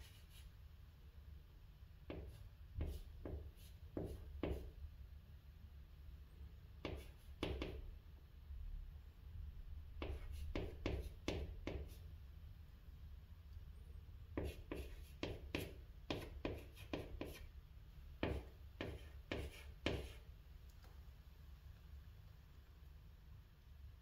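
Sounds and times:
chalk strokes on chalkboard: 0:00.0 - 0:00.5, 0:02.1 - 0:04.7, 0:10.0 - 0:12.0, 0:14.4 - 0:17.5, 0:18.2 - 0:20.3.

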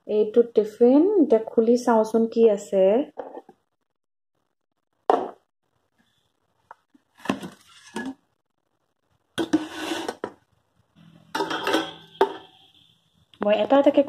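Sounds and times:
knock on table: 0:05.1 - 0:05.4
metal containers clinking: 0:11.1 - 0:12.7.

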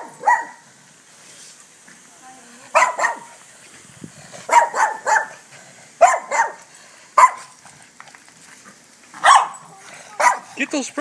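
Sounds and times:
dog barking: 0:00.0 - 0:00.6, 0:02.7 - 0:03.3, 0:04.5 - 0:05.4, 0:06.0 - 0:06.6, 0:07.2 - 0:07.6, 0:09.2 - 0:10.6.

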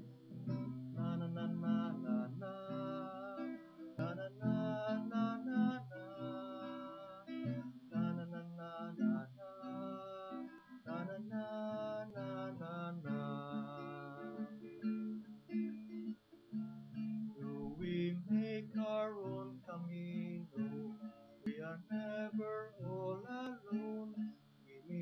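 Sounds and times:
acoustic guitar strumming: 0:00.0 - 0:25.0.

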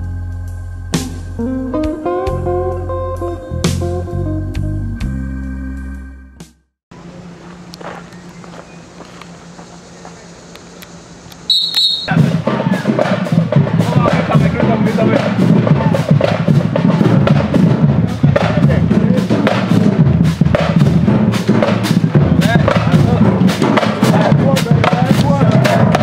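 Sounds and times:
loud voices: 0:11.6 - 0:26.0
music with percussive clicks: 0:11.7 - 0:26.0.

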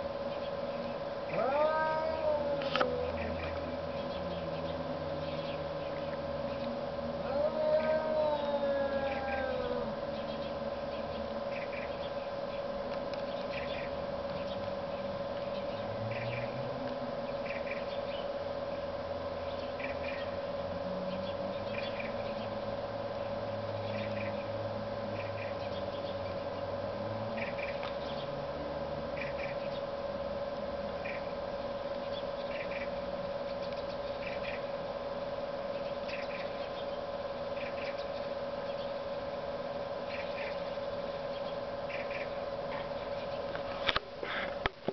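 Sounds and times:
steady hum: 0:00.0 - 0:44.9
cat growling: 0:01.3 - 0:03.4, 0:07.2 - 0:10.0.

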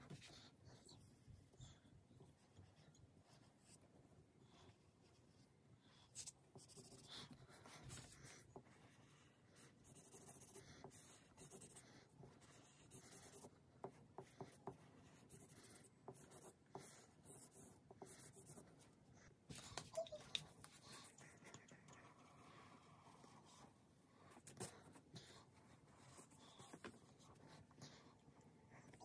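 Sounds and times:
highlighter strokes on paper: 0:04.6 - 0:19.4.

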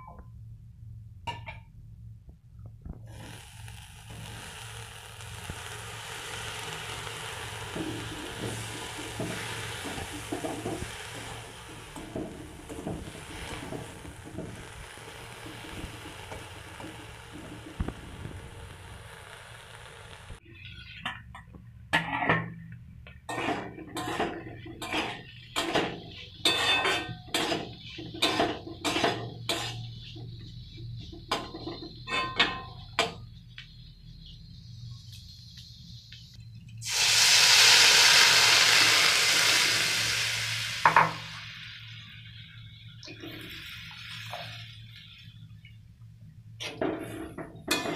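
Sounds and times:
berries sizzling in a wok: 0:03.1 - 0:21.0, 0:23.0 - 0:47.9
spatula scraping a wok: 0:03.1 - 0:21.0, 0:23.3 - 0:32.7, 0:46.6 - 0:47.9.

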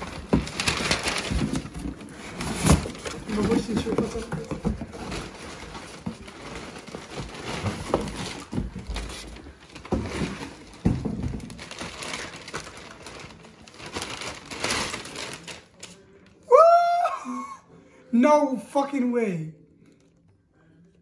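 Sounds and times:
cardboard box bumps: 0:00.0 - 0:12.7
wrapping crinkling and tearing: 0:00.0 - 0:16.4.

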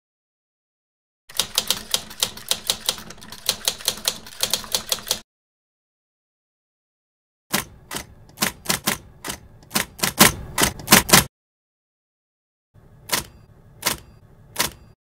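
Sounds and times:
typewriter keys clacking: 0:01.3 - 0:05.2.

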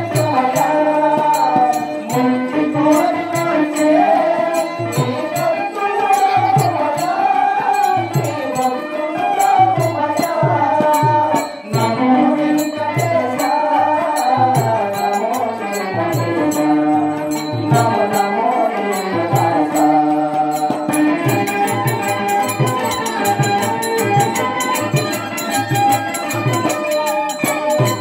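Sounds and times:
steady drum beat: 0:14.4 - 0:28.0.

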